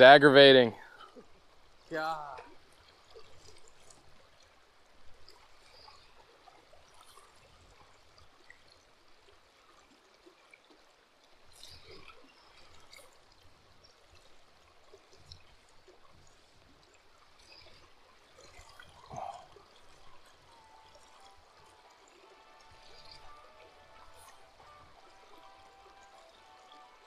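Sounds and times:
river trickling over stones: 0:00.0 - 0:27.0.

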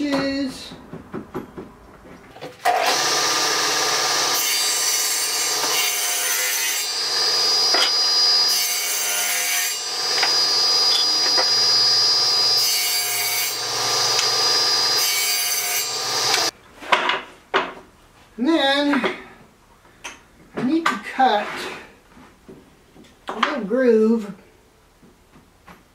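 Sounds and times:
table saw cutting wood: 0:02.6 - 0:16.5.

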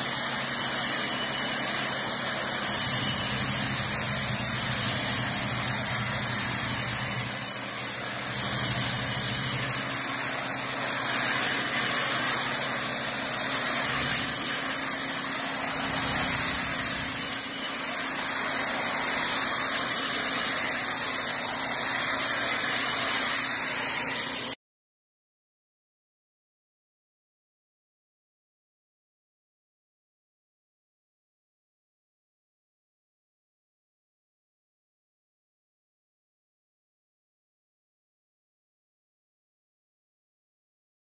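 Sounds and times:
pressure washer machine hum: 0:00.0 - 0:24.6
pressure washer spray hissing: 0:00.0 - 0:24.6.

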